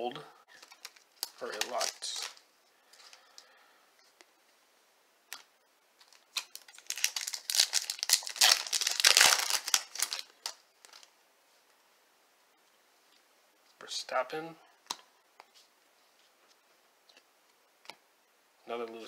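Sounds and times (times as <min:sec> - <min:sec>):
plastic crinkling and rustling: 0:00.5 - 0:03.5, 0:06.0 - 0:11.1.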